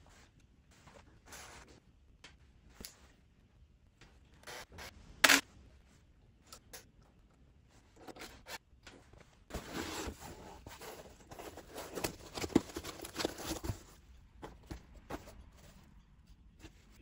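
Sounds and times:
packaging rustling and scraping: 9.5 - 15.9.

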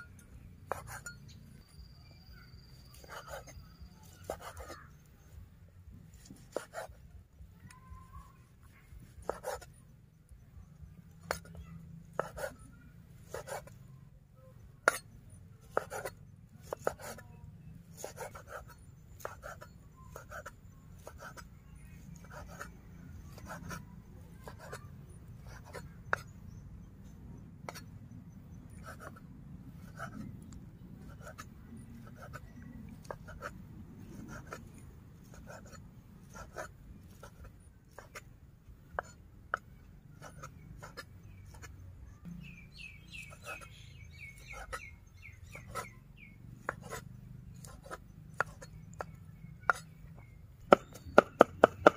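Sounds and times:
knife chopping on wooden block: 47.6 - 49.9, 50.7 - 51.9.

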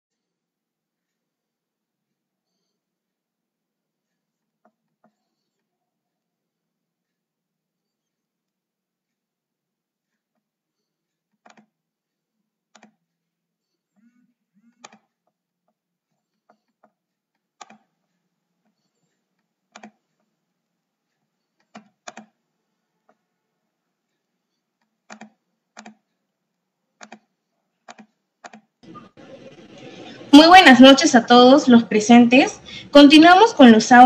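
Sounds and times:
computer mouse clicks: 11.3 - 11.8, 12.7 - 13.0, 14.0 - 15.3, 16.2 - 18.0, 18.7 - 20.2, 21.4 - 22.4, 24.5 - 26.1, 27.0 - 28.7.

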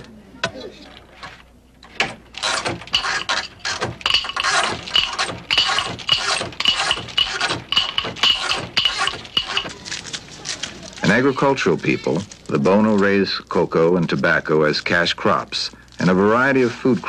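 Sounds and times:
rhythmic metallic rattling and clinking: 2.3 - 10.0.

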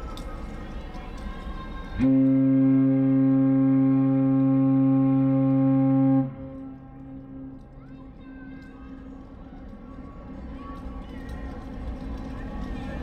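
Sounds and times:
ship horn deep blast: 2.0 - 7.6.

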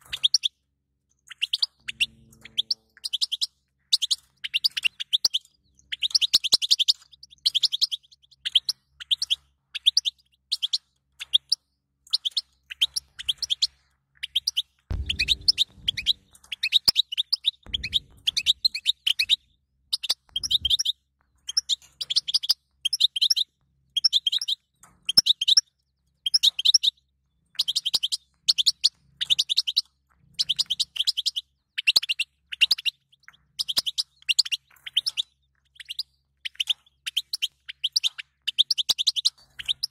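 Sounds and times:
bird twittering: 1.3 - 10.7, 12.2 - 23.4
low thumps: 14.9 - 16.4, 17.7 - 19.4.

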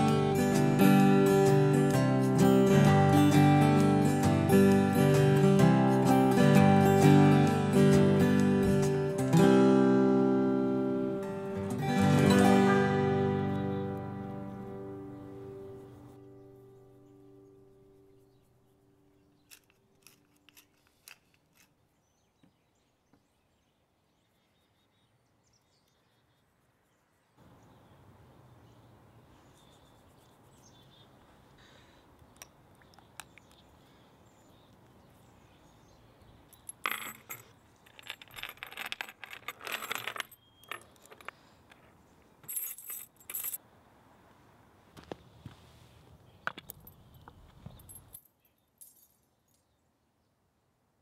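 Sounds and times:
music: 0.0 - 18.1
faint outdoor background: 0.0 - 51.0
metal chain jangling: 19.4 - 21.8, 36.6 - 41.3, 42.4 - 43.6, 47.7 - 49.6.

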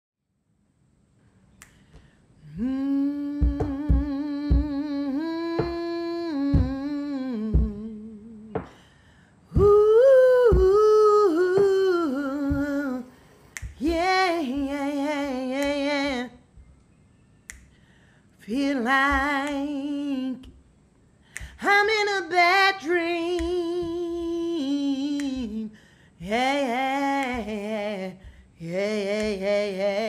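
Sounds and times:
finger snaps: 1.5 - 9.0, 9.6 - 21.9, 22.7 - 25.9, 26.8 - 28.4, 29.0 - 29.6
person humming a melody: 2.4 - 8.7, 9.5 - 16.4, 21.6 - 30.0.

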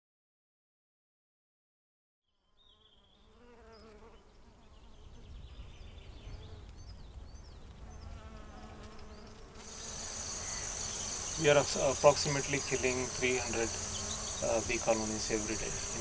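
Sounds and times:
bees buzzing: 2.9 - 6.7, 7.8 - 16.0.

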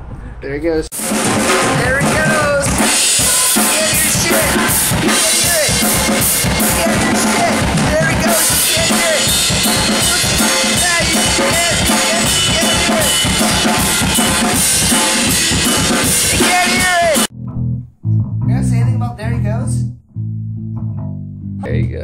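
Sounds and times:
drum kit playing fast beat: 0.9 - 17.3.

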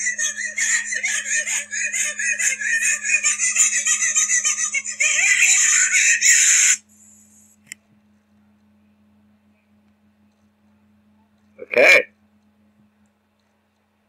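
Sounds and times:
shrieking laughter: 0.0 - 6.4.

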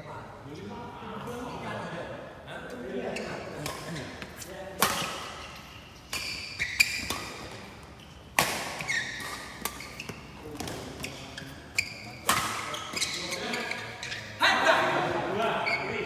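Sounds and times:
shoes squeaking on court: 3.1 - 14.4, 15.6 - 16.0
rackets hitting shuttlecock: 3.6 - 5.4, 6.0 - 11.2, 12.1 - 13.2.

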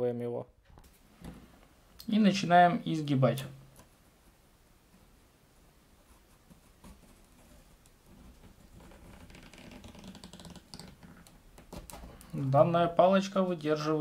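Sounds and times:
plastic strip crackling and creaking: 7.8 - 12.5.

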